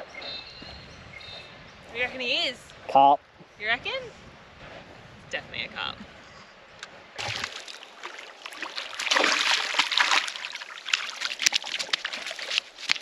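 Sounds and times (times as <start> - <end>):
fish splashing in water: 7.2 - 13.0.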